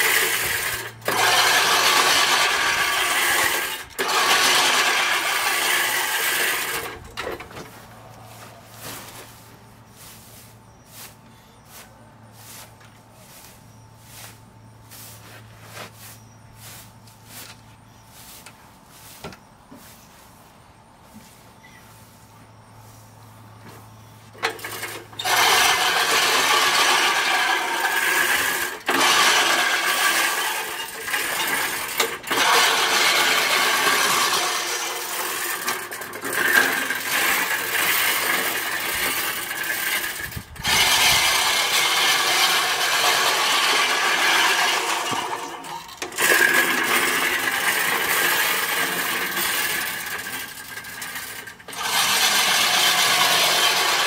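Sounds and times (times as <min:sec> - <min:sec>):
reel mower blades rattling: 0:00.0 - 0:11.8, 0:24.2 - 0:54.0.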